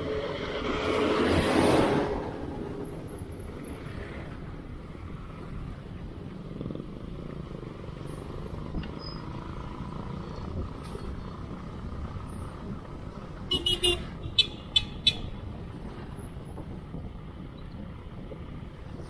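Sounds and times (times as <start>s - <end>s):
wind and tyre noise: 0.0s - 19.0s
horn toots: 13.5s - 15.3s.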